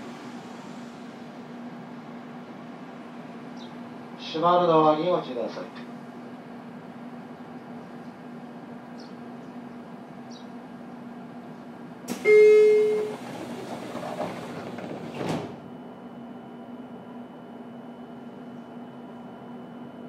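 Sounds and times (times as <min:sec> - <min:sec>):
train car hum: 0:00.0 - 0:20.0
loud warning tone: 0:12.1 - 0:13.3
train doors sliding shut: 0:12.1 - 0:15.8
door closing thud: 0:13.0 - 0:15.6.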